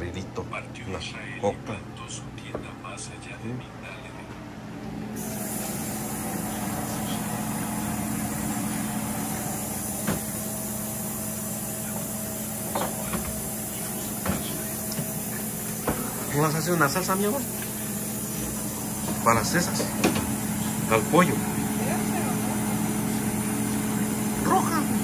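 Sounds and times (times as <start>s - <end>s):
food hissing in a pot: 5.2s - 6.6s.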